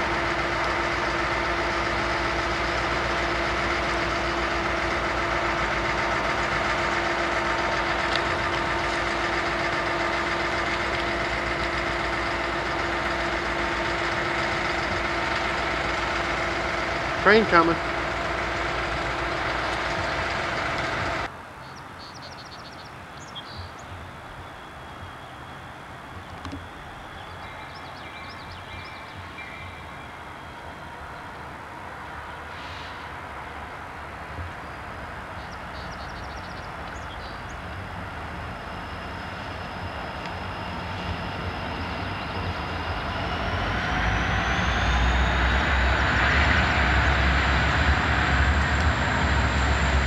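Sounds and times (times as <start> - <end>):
diesel locomotive engines rumbling: 0.0 - 50.0
train passing close by: 0.0 - 50.0
bird chirping: 21.6 - 33.1, 34.5 - 37.8.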